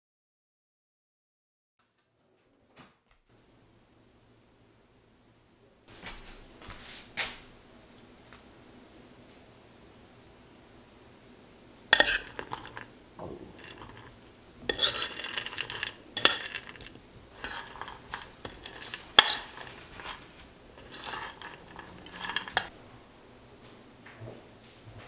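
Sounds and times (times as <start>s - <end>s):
spoon clinking on plate: 11.9s - 22.7s
spoon scraping ceramic plate: 11.9s - 22.7s.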